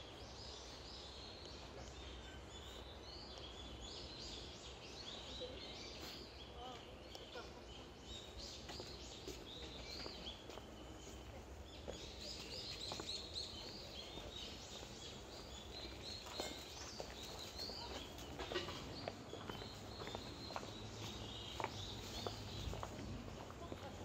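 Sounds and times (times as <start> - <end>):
small birds chirping: 0.0 - 24.0
light footsteps on paving: 4.9 - 24.0.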